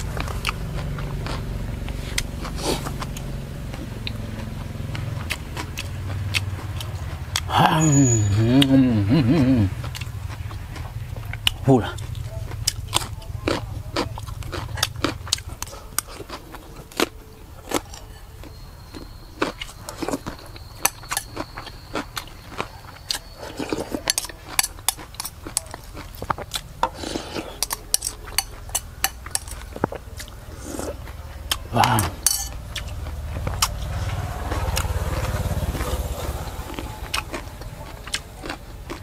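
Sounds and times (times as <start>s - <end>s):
close-up chewing: 0.0s - 7.6s, 8.6s - 39.0s
metal spoon scraping ceramic bowl: 26.8s - 29.8s, 32.0s - 32.7s.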